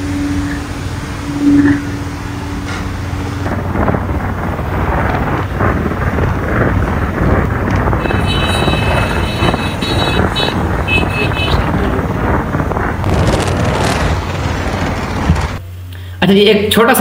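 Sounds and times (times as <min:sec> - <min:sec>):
high steady tone: 0:00.0 - 0:03.5
wind buffeting microphone: 0:00.0 - 0:15.6
road traffic and motorcycles: 0:00.0 - 0:16.1
low steady hum: 0:00.0 - 0:17.0.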